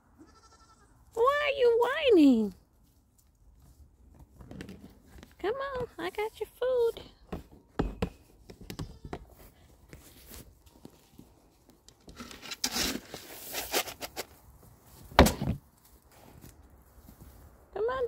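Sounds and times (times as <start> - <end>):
plastic scoop digging into grain: 12.1 - 14.4.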